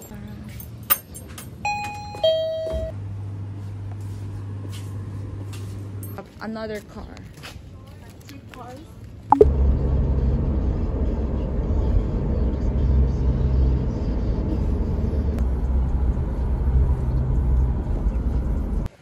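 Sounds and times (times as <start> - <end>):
car road and engine rumble: 8.9 - 18.9.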